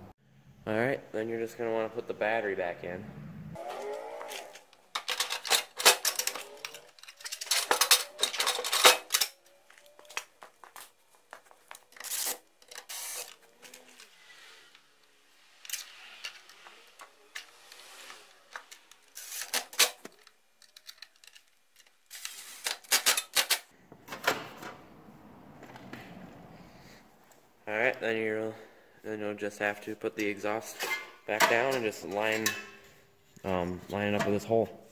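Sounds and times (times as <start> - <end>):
battery parts clattering: 4.6 - 14.8, 15.6 - 23.7.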